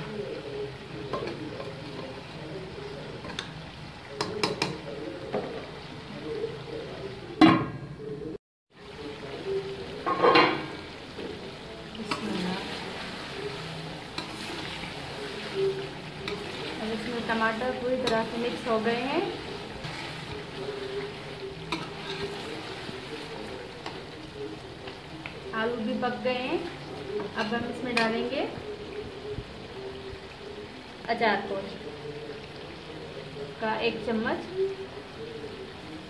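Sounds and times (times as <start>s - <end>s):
food sizzling in pot: 0.0s - 36.0s
ladle scraping pot: 19.4s - 24.1s.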